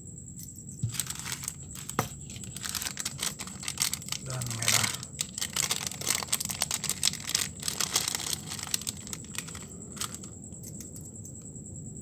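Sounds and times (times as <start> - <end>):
plastic bag crinkling: 0.8 - 10.3.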